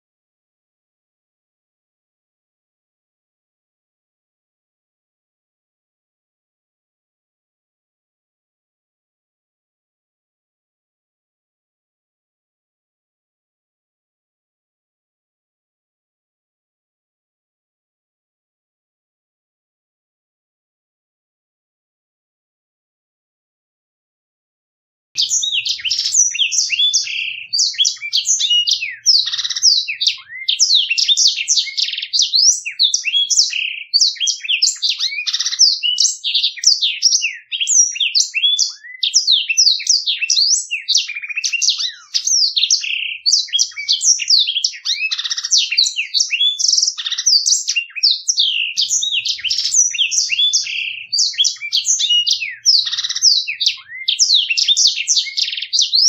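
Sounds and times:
bird singing rapid twittering song: 0:25.2 - 0:56.0.

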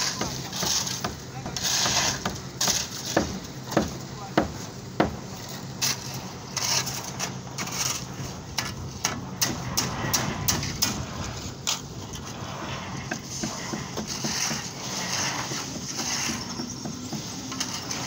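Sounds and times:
people talking: 0:00.0 - 0:02.3, 0:03.5 - 0:05.7
shovels knocking and scraping: 0:00.0 - 0:18.0.

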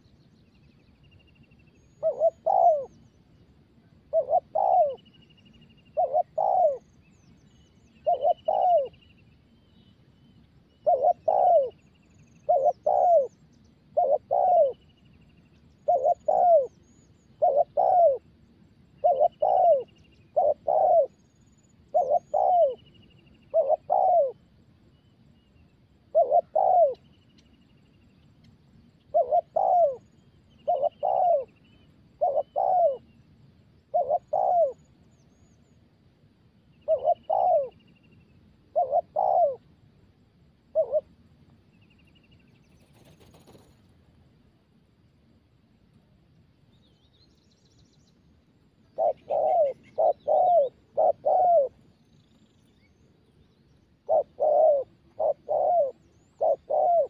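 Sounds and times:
faint small bird chirps: 0:00.0 - 0:35.9, 0:36.6 - 0:44.1, 0:46.6 - 0:57.0
dove cooing: 0:01.8 - 0:03.1, 0:04.0 - 0:05.2, 0:05.8 - 0:07.0, 0:07.9 - 0:09.1, 0:10.7 - 0:14.9, 0:15.7 - 0:24.5, 0:26.0 - 0:27.1, 0:29.0 - 0:33.2, 0:33.9 - 0:35.0, 0:36.8 - 0:37.9, 0:38.7 - 0:39.8, 0:40.7 - 0:41.2, 0:48.8 - 0:52.7, 0:54.0 - 0:57.0.

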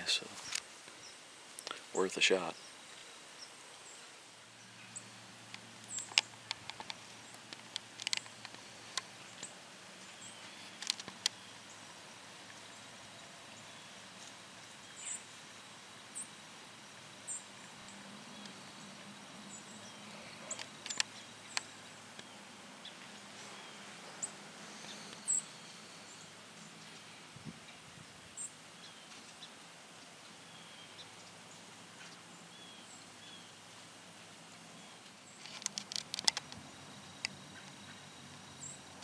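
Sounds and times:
sharp clicks and ticks: 0:05.5 - 0:09.5, 0:35.4 - 0:36.6.

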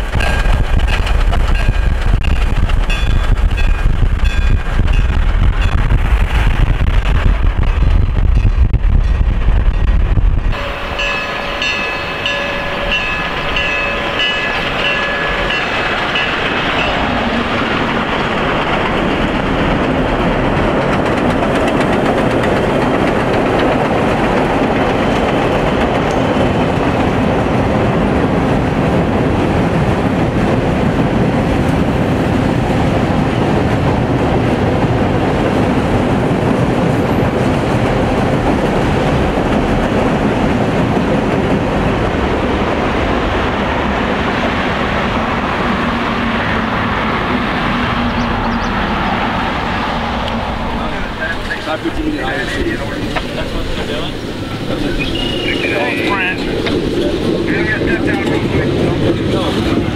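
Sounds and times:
train wheels clattering on rails: 0:00.0 - 0:59.9
high steady ringing tone: 0:10.5 - 0:17.0.

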